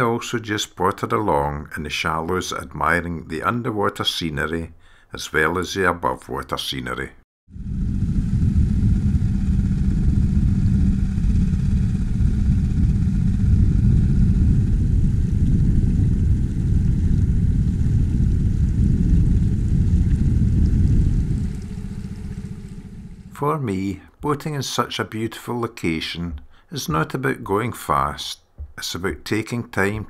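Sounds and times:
outboard motor droning: 7.6 - 23.4.

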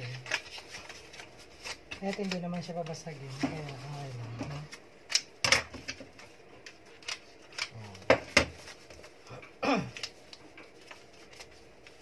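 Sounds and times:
wrapping paper crinkling: 0.0 - 4.8, 10.0 - 12.0.

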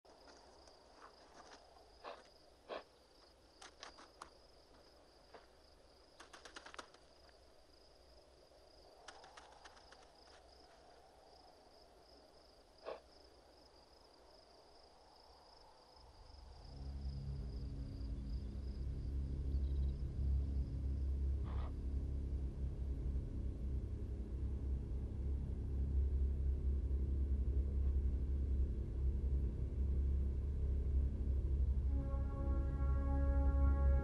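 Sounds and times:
steady high-pitched tone: 31.0 - 34.0
orchestral music: 31.6 - 34.0.

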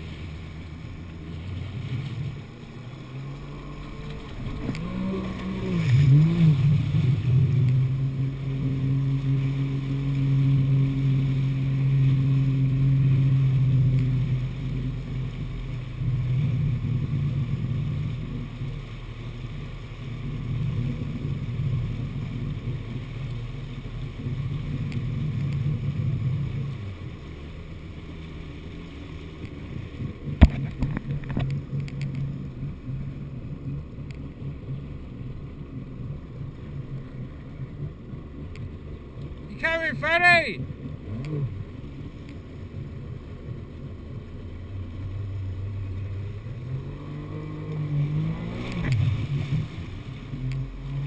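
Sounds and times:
jet ski engine running: 0.0 - 51.0
water rushing under hull: 0.0 - 51.0.

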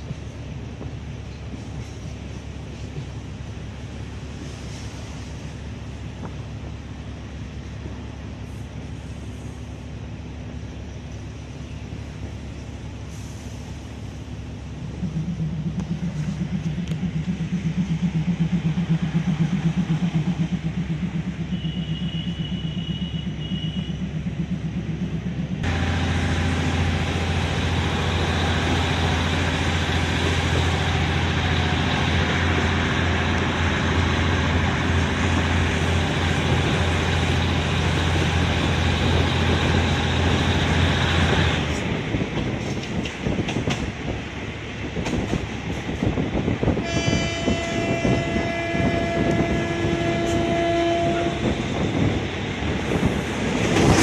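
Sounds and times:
train rolling rumble: 0.0 - 54.0.

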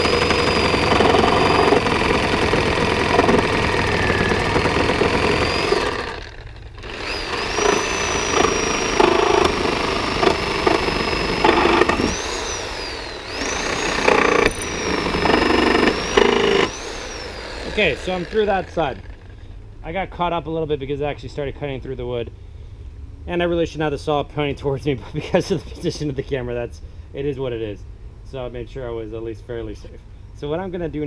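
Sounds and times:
reciprocating saw cutting: 0.0 - 19.3
saw blade rattling: 0.0 - 19.3
high motor whine: 0.0 - 19.4.

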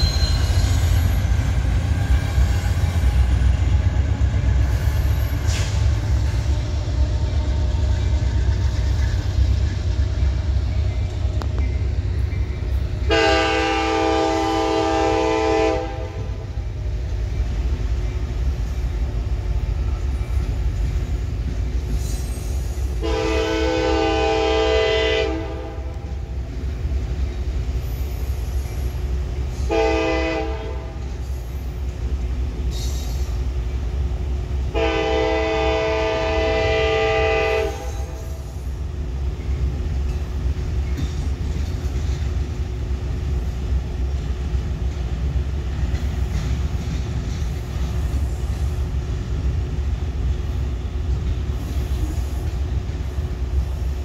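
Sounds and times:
train rumbling: 0.0 - 54.0
locomotive air horn blasts: 13.0 - 16.4, 23.0 - 26.1, 29.6 - 31.1, 34.7 - 38.4.

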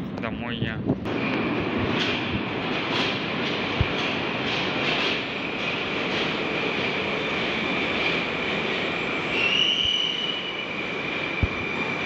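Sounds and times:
metro train running with whine: 0.0 - 12.0
wheel squeal: 6.5 - 12.0.

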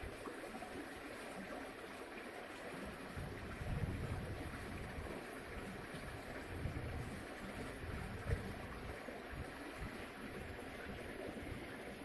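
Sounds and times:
wind buffeting microphone: 3.2 - 10.0.

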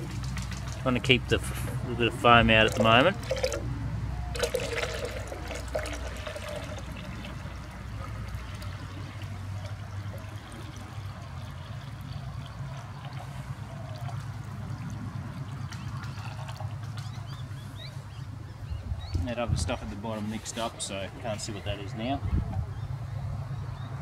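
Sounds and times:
liquid trickling into plastic jug: 0.0 - 3.7, 4.3 - 17.4
low steady rumble: 0.0 - 24.0.

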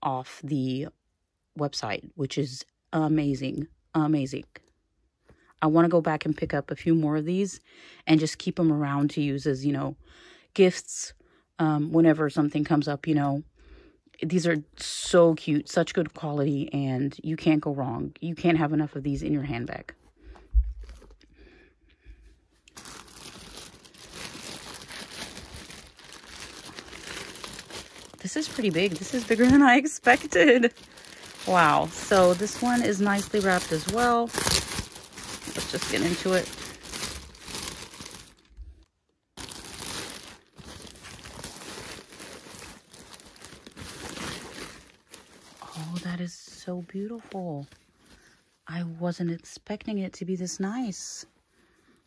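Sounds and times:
plastic wrapping crinkling: 22.6 - 46.2.

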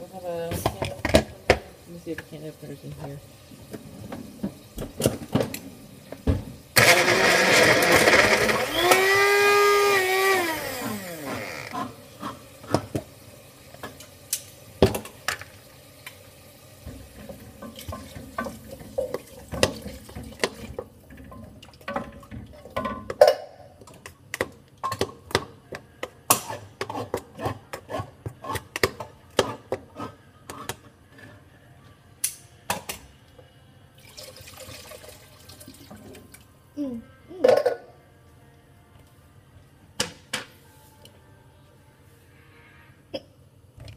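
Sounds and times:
blender motor winding down: 6.8 - 11.8.

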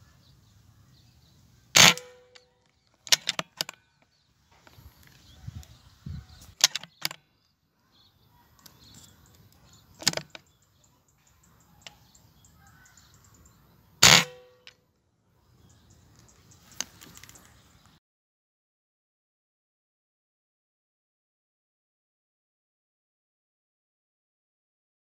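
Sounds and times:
short sharp cracks: 1.7 - 3.8, 14.0 - 14.8
silenced air rifle shot: 1.7 - 3.8, 6.5 - 7.2, 14.0 - 14.7.

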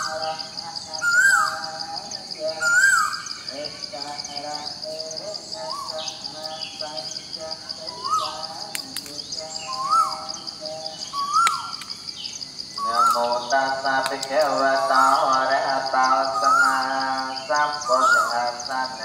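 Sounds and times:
insects trilling: 0.0 - 19.0.

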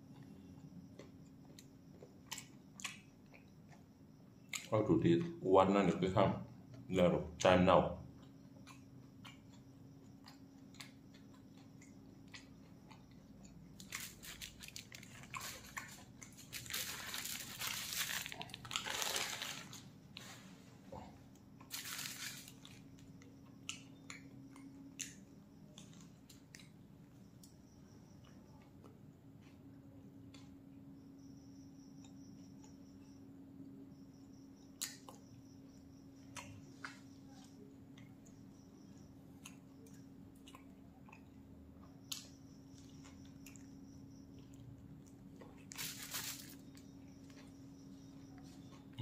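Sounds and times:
person chewing food: 0.0 - 4.7, 8.1 - 19.4, 20.1 - 30.7, 34.3 - 49.0
paper wrapping crinkle: 13.8 - 19.9, 21.7 - 22.7, 45.7 - 46.6.

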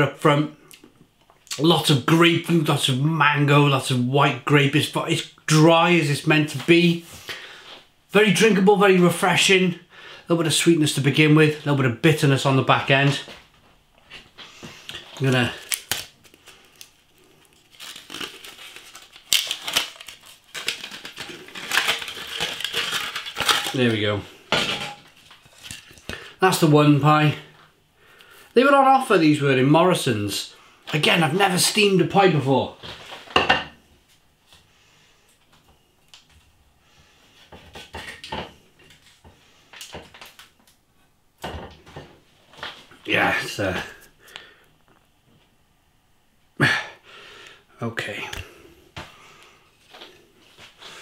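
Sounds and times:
foil tray crinkling and scraping: 15.2 - 26.1
plates and pans clattering: 33.3 - 33.8.

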